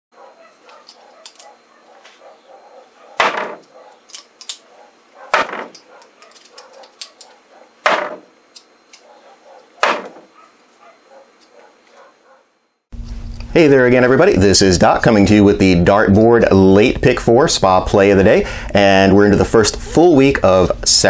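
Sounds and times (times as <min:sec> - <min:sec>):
darts striking a dartboard: 0:03.2 - 0:03.6, 0:05.3 - 0:05.8, 0:07.8 - 0:08.3, 0:09.8 - 0:10.3.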